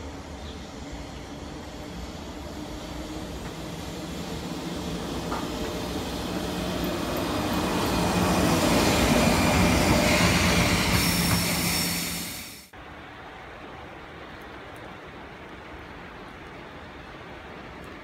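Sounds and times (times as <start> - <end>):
train passing at speed: 0.0 - 13.0.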